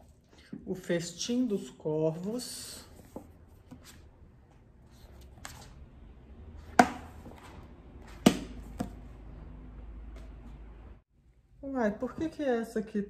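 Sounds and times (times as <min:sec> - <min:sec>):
book pages rustling: 0:02.1 - 0:09.2
book knocking: 0:06.6 - 0:09.0.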